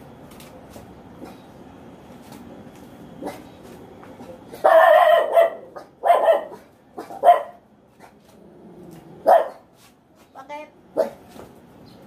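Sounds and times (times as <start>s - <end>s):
dog barking: 4.6s - 7.6s, 9.2s - 9.7s, 11.0s - 11.2s.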